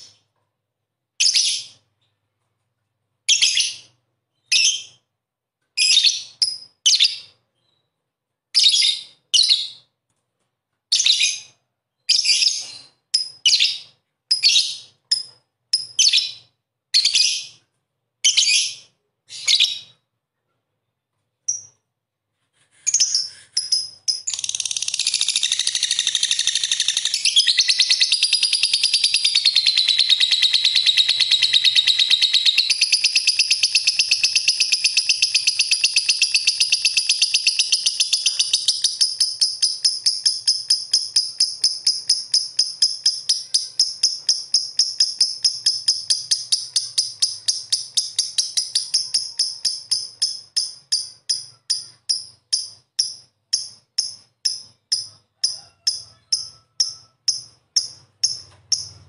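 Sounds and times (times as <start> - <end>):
lovebird chirping and chattering: 1.2 - 1.9, 5.8 - 7.8, 10.9 - 17.6, 18.2 - 20.0, 21.4 - 21.8, 22.8 - 59.0.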